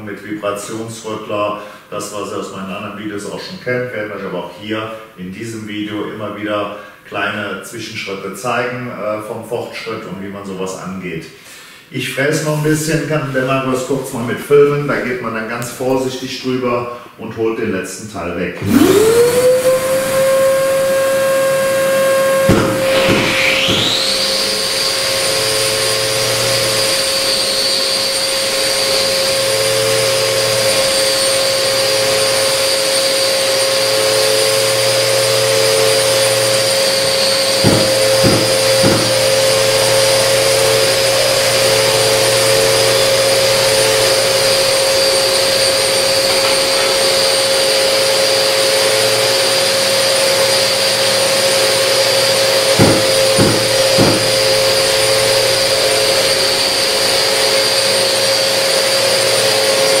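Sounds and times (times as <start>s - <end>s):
floor grinder whining: 18.6s - 60.0s.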